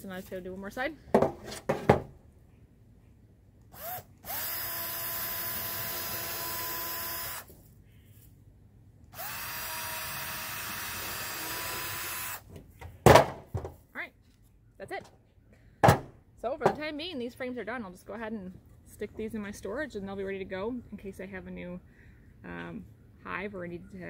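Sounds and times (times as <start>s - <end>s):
cordless drill boring into wood: 3.7s - 7.5s, 9.1s - 12.4s.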